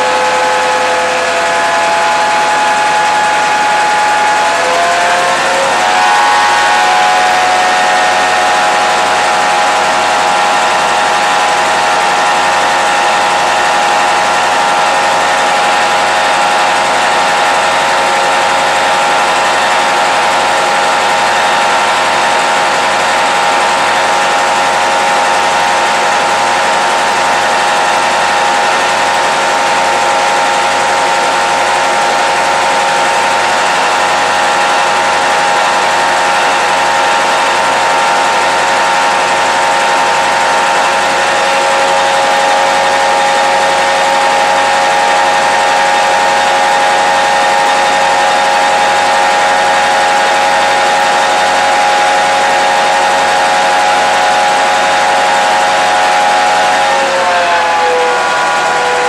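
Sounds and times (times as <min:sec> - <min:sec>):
diesel engine running loud: 0:00.0 - 0:59.0
steady whine: 0:00.0 - 0:59.0.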